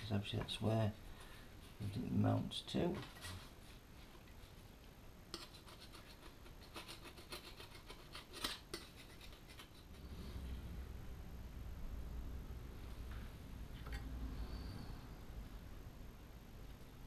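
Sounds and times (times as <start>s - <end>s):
scraping and rubbing on metal: 2.9s - 4.6s, 5.3s - 10.6s
low rumble: 10.0s - 16.0s.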